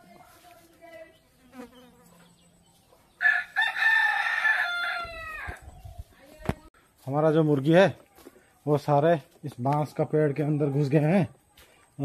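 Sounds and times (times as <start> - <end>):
rooster crowing: 3.2 - 5.6.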